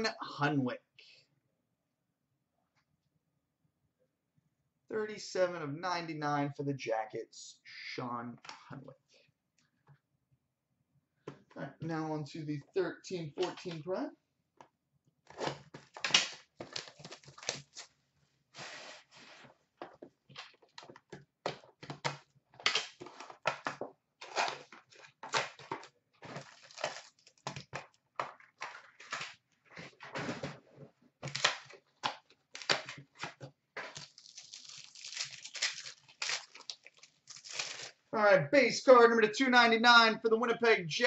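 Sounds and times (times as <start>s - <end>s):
plastic wrapping tearing and crinkling: 15.4s - 18.0s, 24.2s - 27.7s, 31.2s - 33.2s, 33.8s - 38.0s.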